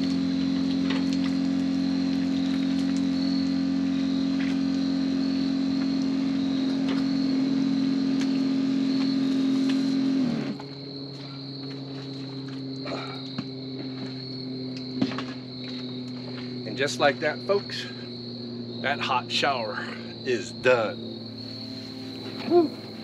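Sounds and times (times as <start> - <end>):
shower spraying water: 0.0 - 8.8
crickets chirping: 0.0 - 23.0.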